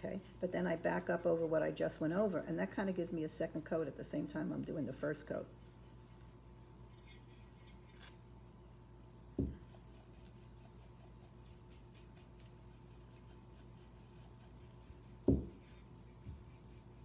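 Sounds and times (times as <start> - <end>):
steady low hum: 0.0 - 17.0
paintbrush scratching on ceramic: 0.4 - 2.7, 9.6 - 17.0
low thump: 9.4 - 9.6.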